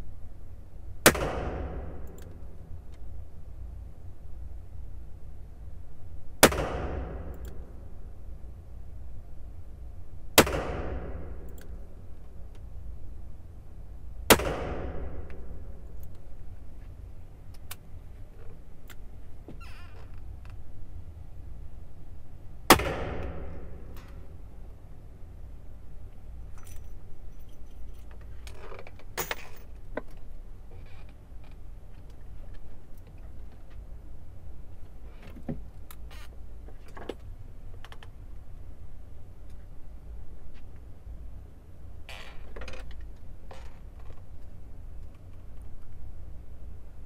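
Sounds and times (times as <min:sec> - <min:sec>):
revolver gunshots ringing: 0:01.0 - 0:02.1, 0:06.4 - 0:07.8, 0:10.4 - 0:11.5, 0:14.3 - 0:15.8, 0:22.7 - 0:24.0
revolver metallic clicks and clinks: 0:26.5 - 0:30.2.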